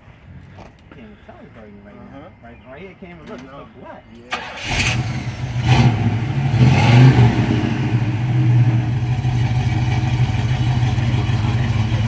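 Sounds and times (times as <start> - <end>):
car engine idling: 4.3 - 12.0.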